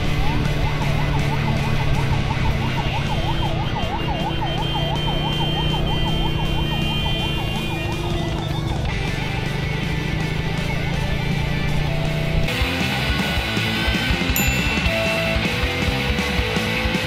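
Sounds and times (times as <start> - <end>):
motorcycle engine running: 0.0 - 17.0
yelp siren: 0.2 - 8.9.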